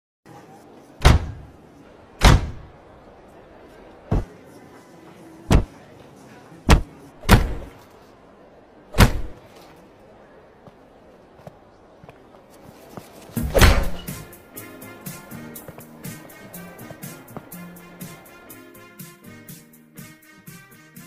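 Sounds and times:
car door slamming: 0:01.0 - 0:01.5, 0:02.2 - 0:02.6.

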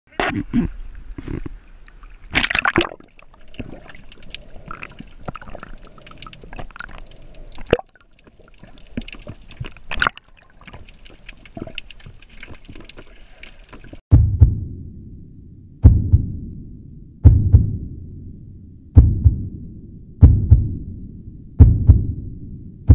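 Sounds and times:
crackles and clicks underwater: 0:00.2 - 0:14.0
underwater splashing and bubbling: 0:00.5 - 0:14.0
loud low thump: 0:14.1 - 0:22.9.

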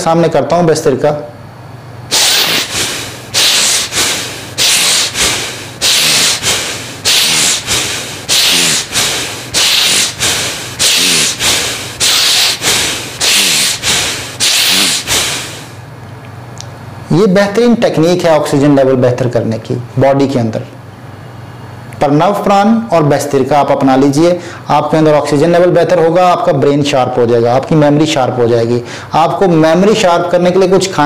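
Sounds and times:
man breathing forcefully through nose: 0:02.1 - 0:15.8.

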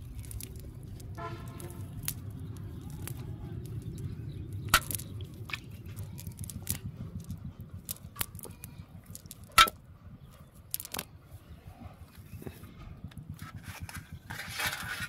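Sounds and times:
nylon net crackling and rustling: 0:00.0 - 0:04.2
net snapping: 0:00.0 - 0:09.8
low steady rumble: 0:00.0 - 0:15.0.

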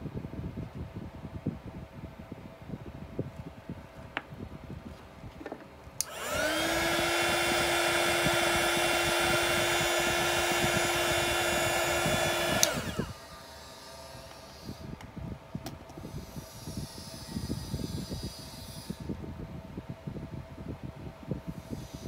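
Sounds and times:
heat gun fan whining: 0:05.4 - 0:22.0
air blowing: 0:06.0 - 0:15.3
heat gun switch click: 0:12.4 - 0:12.9.

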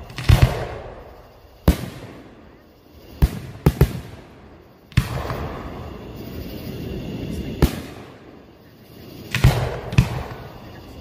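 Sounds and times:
aerial firework shells booming: 0:00.0 - 0:06.0, 0:07.6 - 0:08.3, 0:09.3 - 0:10.6.

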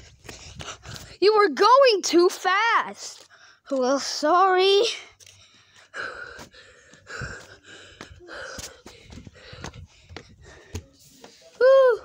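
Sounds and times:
person panting: 0:00.0 - 0:01.2, 0:04.8 - 0:12.0
footsteps: 0:05.2 - 0:11.6.

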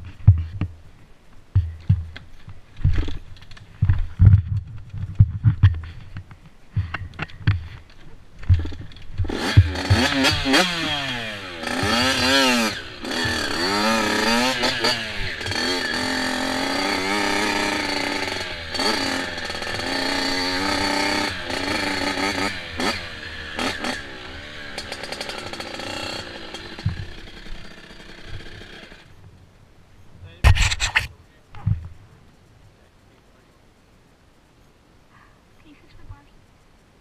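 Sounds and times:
dirt bike engine revving: 0:08.4 - 0:29.2.

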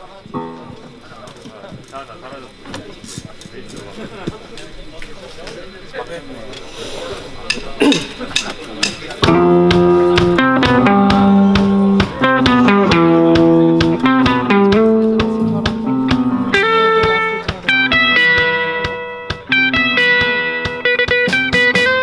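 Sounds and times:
live band instrumental: 0:00.0 - 0:02.0, 0:06.7 - 0:22.0.

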